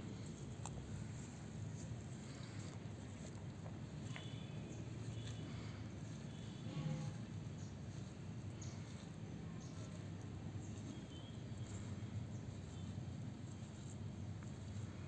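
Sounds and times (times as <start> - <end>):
low outdoor rumble: 0.0 - 15.0
faint high chirp: 10.6 - 11.8.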